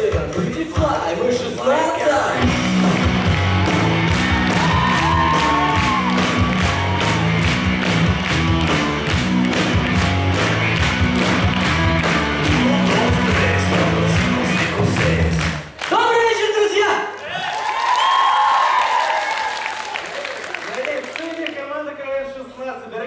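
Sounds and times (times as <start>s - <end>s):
dance music with fast beat: 2.4s - 15.6s.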